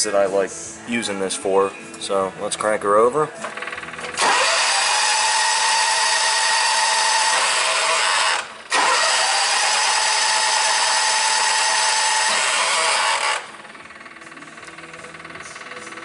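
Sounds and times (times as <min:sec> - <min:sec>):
electric starter cranking engine: 0:03.4 - 0:16.0.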